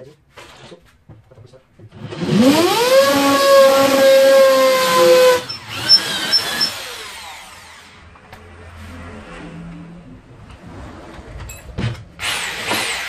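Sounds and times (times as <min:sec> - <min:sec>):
electric drill whining: 0:02.1 - 0:08.0.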